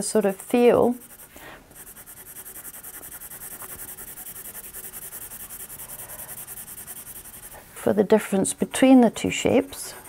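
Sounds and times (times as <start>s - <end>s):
pencil shading on paper: 0.5s - 7.6s, 9.3s - 10.0s.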